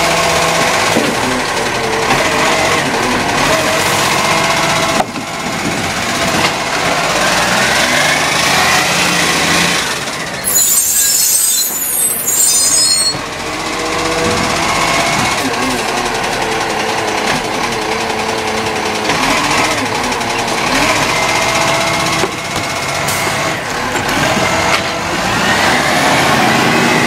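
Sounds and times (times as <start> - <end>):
garbage truck engine running: 0.0 - 27.0
hydraulic arm whine: 10.4 - 13.3
high hissing: 10.5 - 13.2.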